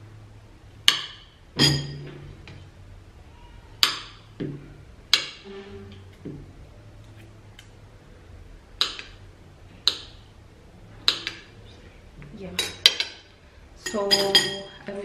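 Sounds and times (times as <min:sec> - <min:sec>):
cutlery clinking on ceramic plate: 0:13.8 - 0:14.8.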